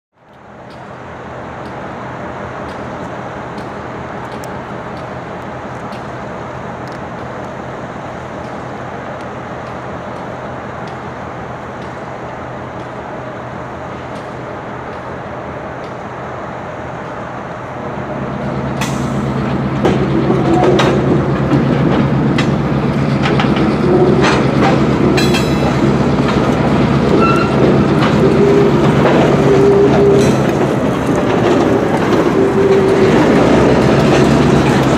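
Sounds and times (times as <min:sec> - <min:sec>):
freight train rumbling: 0:00.2 - 0:34.9
train cars clanking: 0:00.3 - 0:34.9
train wheel clicks: 0:02.6 - 0:06.2, 0:18.8 - 0:34.9
wheels squeaking: 0:27.0 - 0:34.3.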